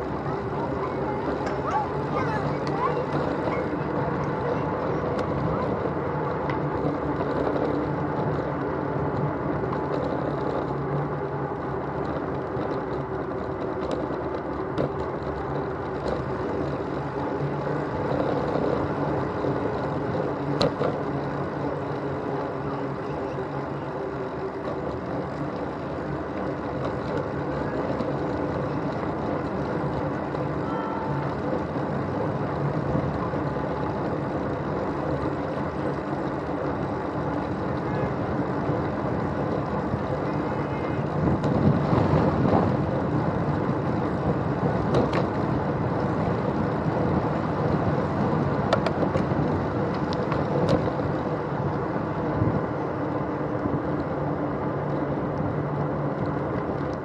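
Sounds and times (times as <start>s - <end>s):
bicycle clicks and rattles: 0.0s - 57.0s
tyre and wind noise: 0.0s - 57.0s.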